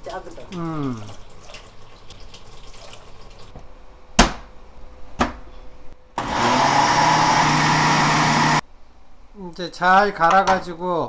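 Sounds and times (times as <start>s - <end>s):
water pouring into blender jar: 0.2s - 3.5s
blender motor grinding: 6.2s - 8.6s.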